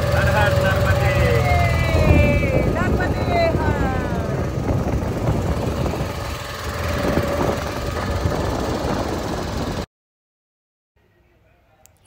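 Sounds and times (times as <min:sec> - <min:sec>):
motorboat engine running: 0:00.0 - 0:09.9
dense rushing noise: 0:01.0 - 0:09.8.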